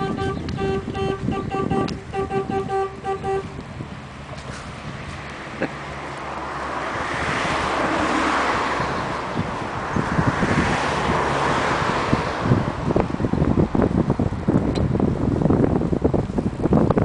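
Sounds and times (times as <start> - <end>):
boat engine hum: 0.0 - 10.0
wind buffeting the microphone: 0.0 - 17.0.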